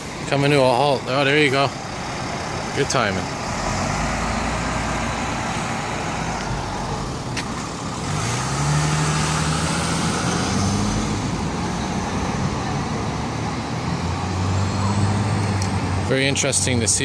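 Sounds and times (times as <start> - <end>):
city street traffic: 0.0 - 17.0
car accelerating past: 3.4 - 16.1.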